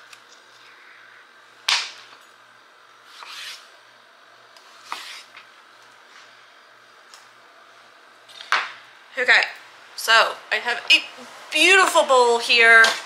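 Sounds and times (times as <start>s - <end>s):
scraping rub on counter: 4.8s - 5.3s.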